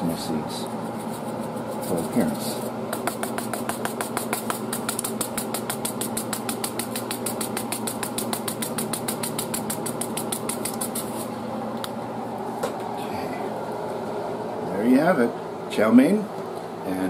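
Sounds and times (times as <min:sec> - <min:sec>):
steady hum: 0:00.0 - 0:17.0
seeds rattling in shaker jar: 0:03.0 - 0:11.2.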